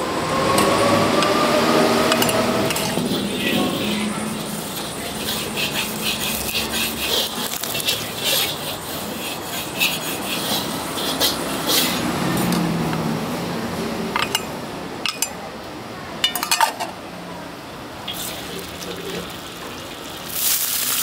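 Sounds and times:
metal spatula scraping a wok: 2.0s - 12.5s.

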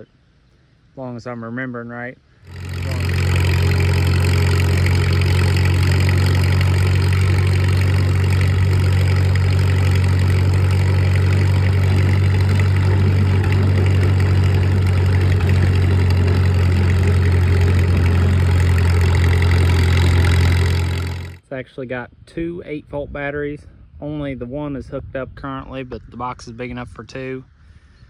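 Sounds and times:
tractor engine running: 2.5s - 21.4s.

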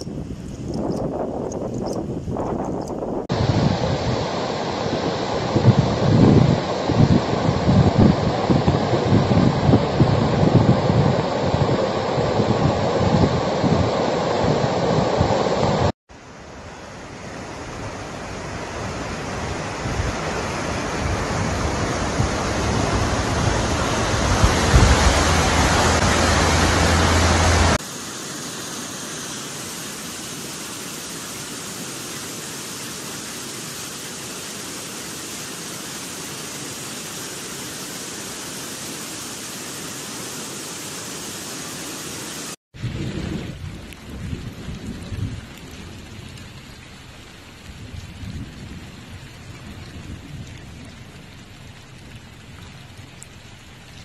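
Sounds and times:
wind buffeting microphone: 0.0s - 15.9s, 17.9s - 27.8s, 42.8s - 46.4s, 47.6s - 51.3s
floodwater rushing: 3.3s - 54.0s.

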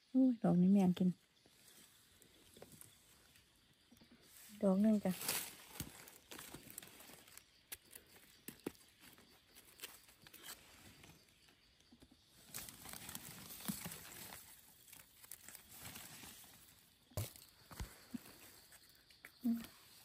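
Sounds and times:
dry leaves rustling and crunching: 4.9s - 11.1s, 12.3s - 17.5s.

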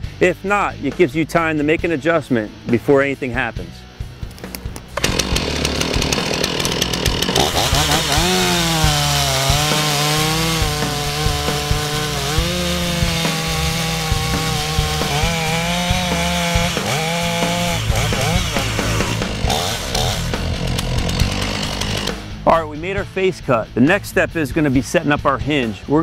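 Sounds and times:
chainsaw cutting wood: 4.3s - 22.4s.

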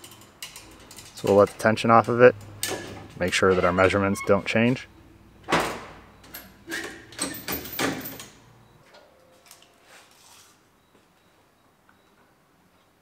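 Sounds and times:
metal chain clanking and rattling: 0.0s - 4.0s, 6.2s - 8.4s.

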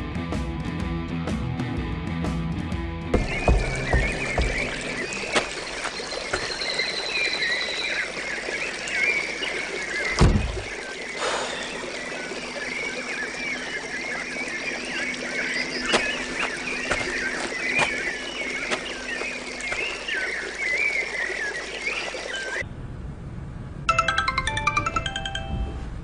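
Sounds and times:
dull thump: 3.2s - 5.6s, 10.2s - 10.7s
small birds chirping: 3.2s - 22.6s.

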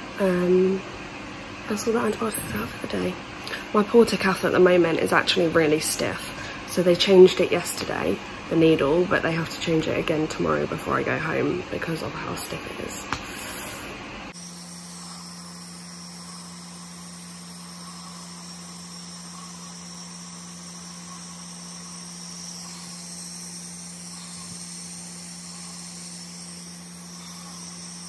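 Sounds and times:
nebulizer compressor humming: 0.0s - 28.0s
air hissing: 13.2s - 28.0s.

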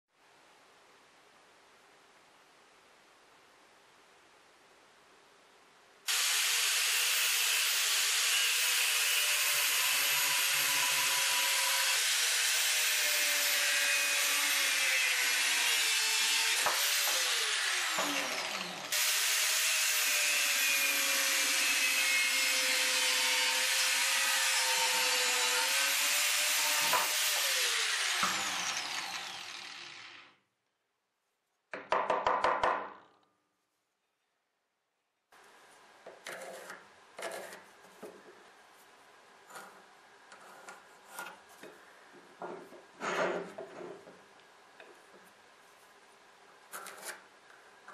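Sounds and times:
angle grinder cutting bone: 6.1s - 30.4s.

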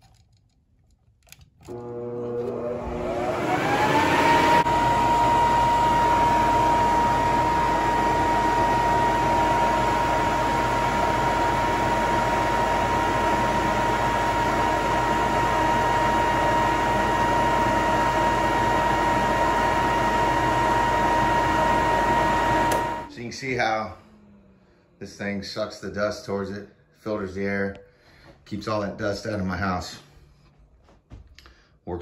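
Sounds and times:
blower high whine: 1.7s - 25.4s
blower rush of air: 2.0s - 23.1s.

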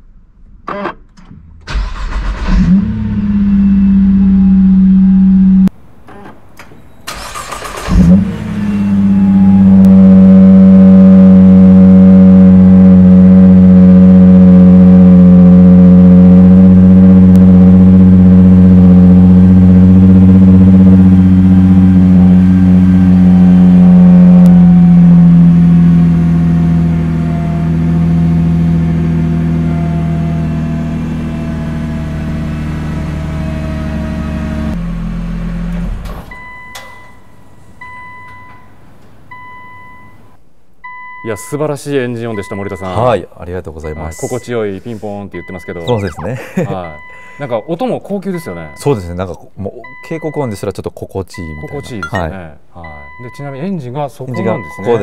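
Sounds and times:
car engine cranking and starting: 0.5s - 36.9s
car engine idling: 7.1s - 36.0s.

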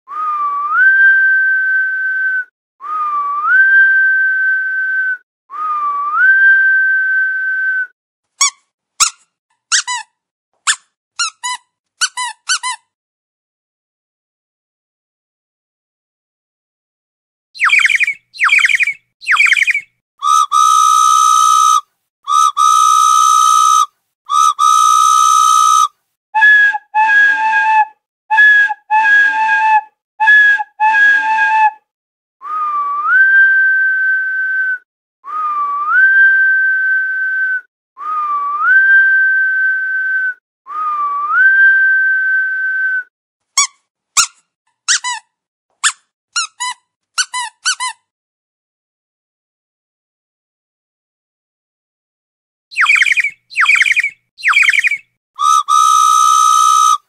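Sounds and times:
whistle-like sound effects: 0.1s - 8.0s, 17.6s - 31.8s, 32.4s - 43.1s, 52.7s - 57.0s.

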